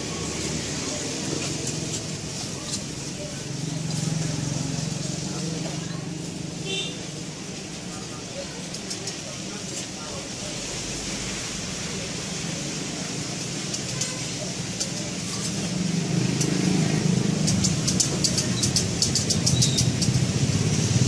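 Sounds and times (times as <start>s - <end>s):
street traffic noise: 0.0s - 21.0s
vehicle engine hum: 0.0s - 21.0s
sharp clicks: 17.4s - 20.2s.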